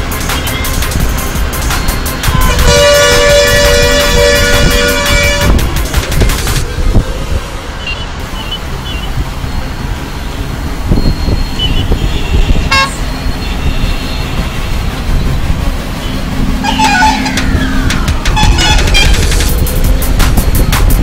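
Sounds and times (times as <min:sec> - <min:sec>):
highway traffic: 0:00.0 - 0:21.0
truck engines running: 0:00.0 - 0:21.0
brief horn honk: 0:02.3 - 0:05.7, 0:11.6 - 0:14.8, 0:16.6 - 0:17.7, 0:18.3 - 0:19.3
short high horn beeps: 0:11.0 - 0:14.5.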